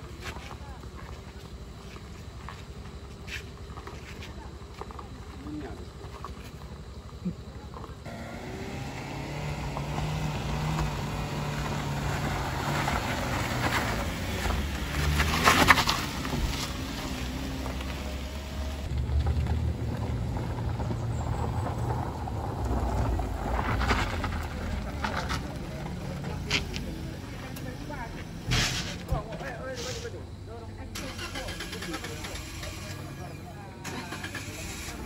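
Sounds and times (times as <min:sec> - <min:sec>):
car engines labouring: 0:00.0 - 0:35.0
tyres grinding over gravel: 0:07.8 - 0:30.3.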